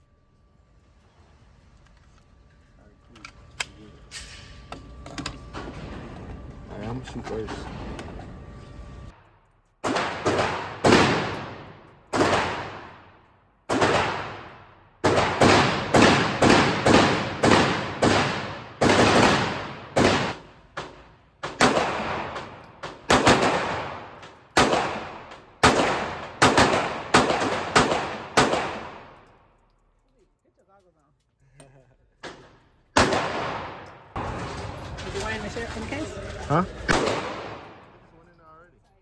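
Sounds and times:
pistol shots: 9.8s - 29.2s, 32.2s - 34.3s, 36.9s - 38.0s.

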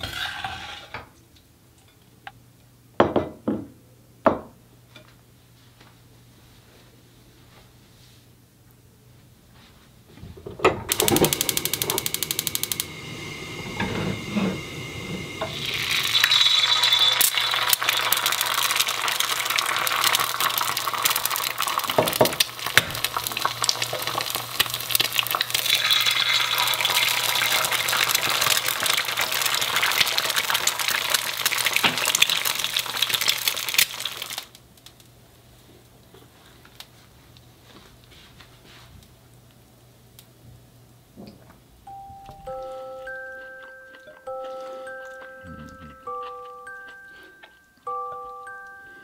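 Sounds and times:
rapid igniter clicking: 10.9s - 13.1s
egg sizzling in oil: 10.9s - 34.6s.

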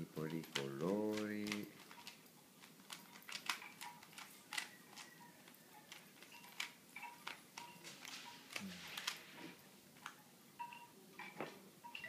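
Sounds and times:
plastic cube twisting clicks: 0.2s - 9.2s.

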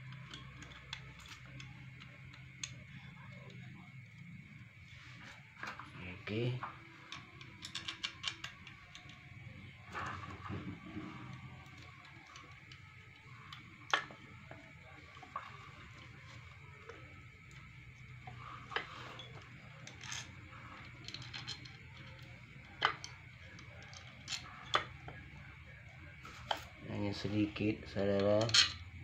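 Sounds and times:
low steady hum: 0.0s - 29.0s
metal parts clinking: 7.1s - 9.1s, 18.2s - 25.1s, 27.9s - 28.8s.

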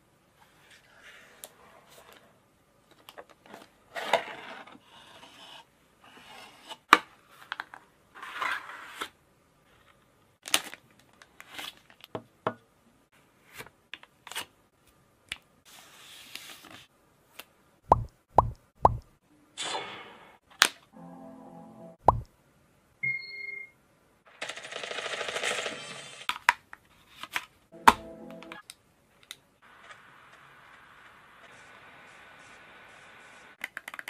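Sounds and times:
sharp clicks and taps: 17.9s - 19.2s, 22.0s - 22.4s.

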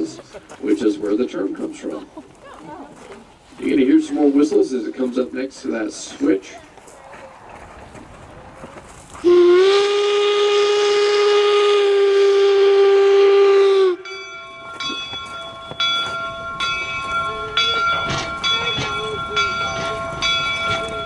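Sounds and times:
steam whistle blast: 9.2s - 14.2s
locomotive bell ringing: 13.8s - 21.0s.

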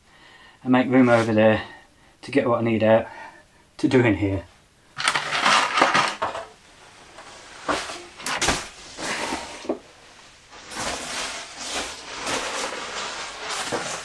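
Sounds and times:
gear rustling and scraping on shelves: 0.8s - 1.7s, 5.0s - 14.0s
knocks and clunks of handling: 5.0s - 6.6s.

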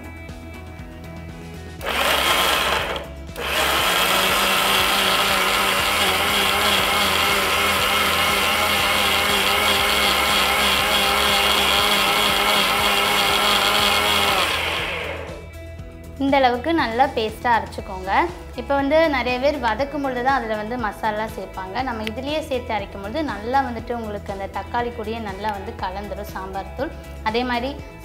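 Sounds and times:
mixer grinder motor whine: 1.8s - 15.6s.

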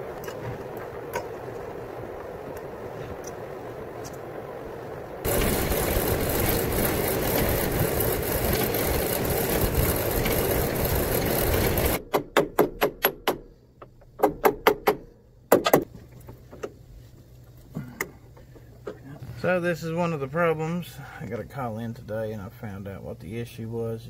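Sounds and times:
folding machine running: 5.2s - 12.0s
sharp metallic clicks and knocks: 5.3s - 16.8s.

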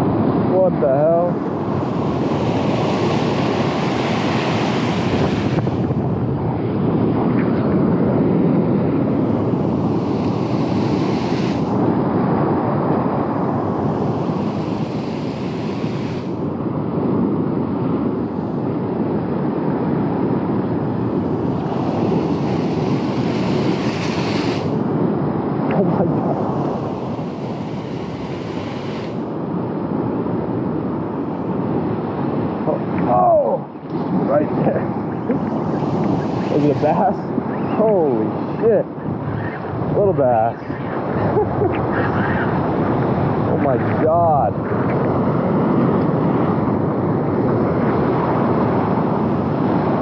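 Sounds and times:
surf washing against rocks: 0.0s - 6.3s, 8.9s - 16.8s, 20.4s - 30.1s, 32.5s - 38.8s
wind buffeting microphone: 0.0s - 50.0s.

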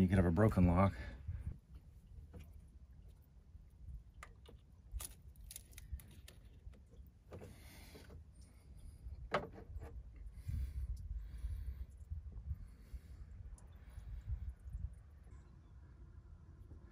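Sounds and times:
low steady rumble: 0.0s - 16.9s.

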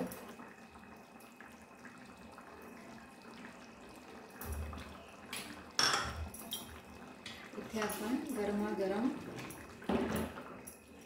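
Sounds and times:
bowl and kitchenware clattering: 5.8s - 6.8s.

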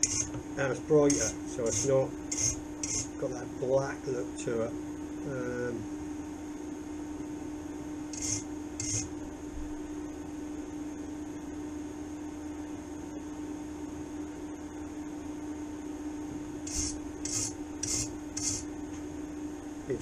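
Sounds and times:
hand tool scraping steel: 0.0s - 0.3s, 1.1s - 3.1s, 8.2s - 9.1s, 16.7s - 18.6s
workshop electrical hum: 0.0s - 20.0s.

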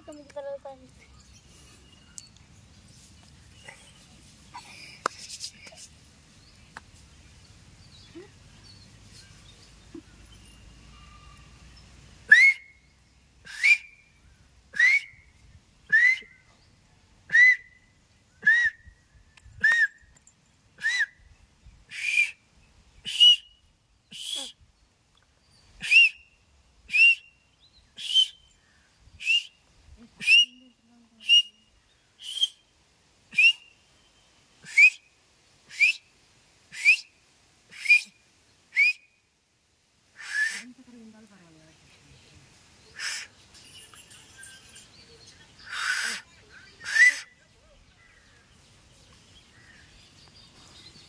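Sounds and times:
person whistling with fingers: 13.5s - 14.0s, 15.9s - 16.4s, 18.4s - 18.8s, 19.6s - 20.0s, 23.1s - 24.6s, 25.8s - 26.2s, 28.0s - 28.5s, 29.2s - 29.6s, 32.2s - 32.6s, 33.4s - 33.7s, 34.7s - 35.0s, 35.7s - 36.0s, 36.8s - 37.1s, 37.7s - 38.1s, 38.8s - 39.0s, 46.8s - 47.3s.

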